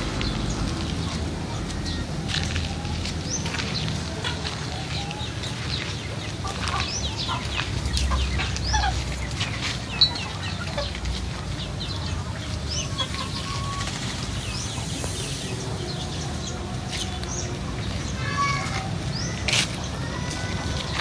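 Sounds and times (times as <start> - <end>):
chickens clucking: 0.0 - 21.0
high chirps: 12.1 - 18.5.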